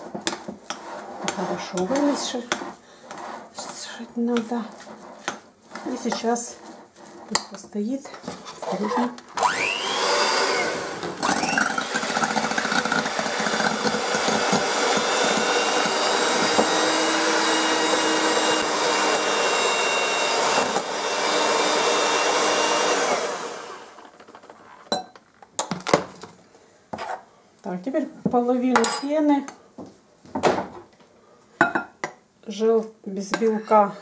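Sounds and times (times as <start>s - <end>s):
electric hand mixer whisking: 9.4s - 24.2s.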